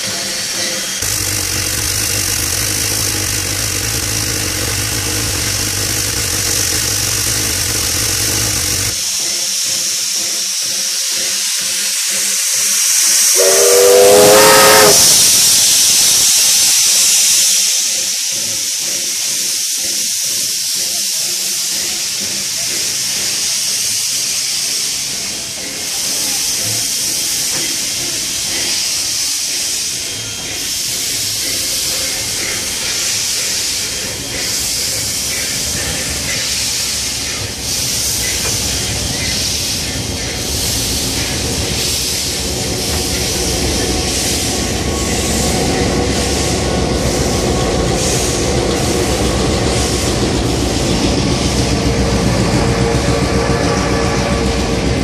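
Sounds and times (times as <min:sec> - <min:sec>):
loud rush of steam: 0:00.0 - 0:55.0
steam hissing: 0:00.0 - 0:55.0
low hum: 0:01.0 - 0:09.0
steam whistle blast: 0:13.1 - 0:16.0.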